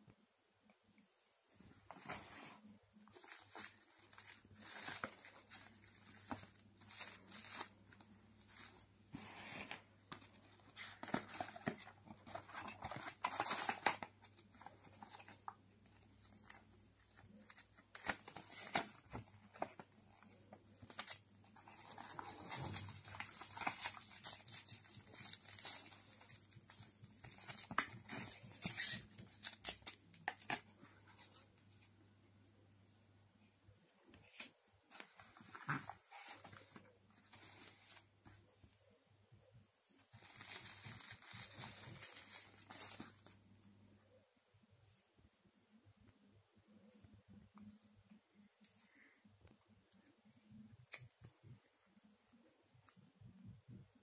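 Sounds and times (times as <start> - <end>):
paper and plastic film crinkling: 3.0 - 30.6, 40.1 - 43.4.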